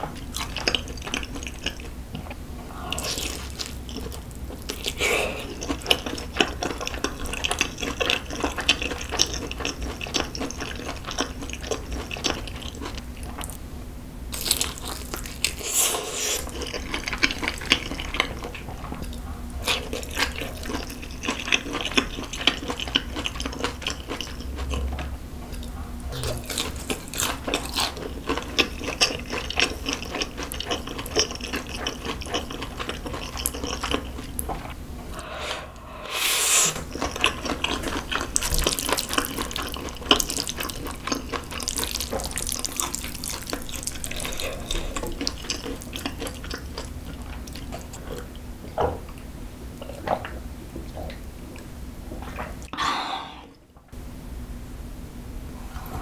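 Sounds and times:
person chewing food: 0.0 - 13.6, 14.4 - 48.4
brief rushing sound: 35.1 - 36.9.

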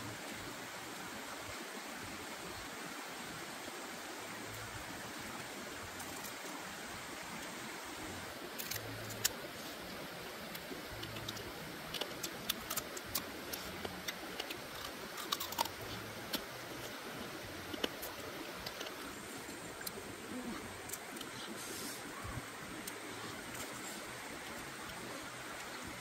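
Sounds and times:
stream rushing: 0.0 - 26.0
crab shell crunching when chewed: 10.5 - 17.0.

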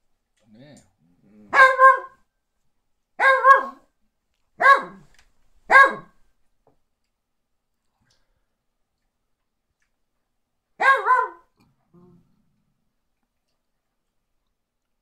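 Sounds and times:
high-pitched dog barks: 1.5 - 2.2, 3.2 - 3.9, 4.6 - 5.1, 5.7 - 6.2, 10.8 - 11.6.

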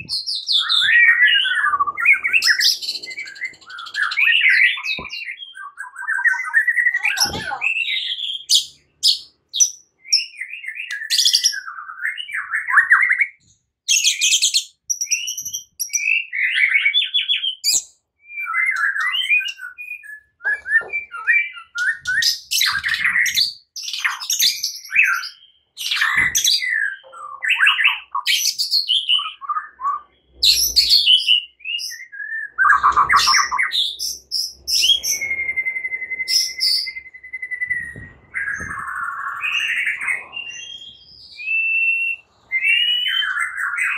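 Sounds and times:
bird singing whistles and trills: 0.0 - 43.9.

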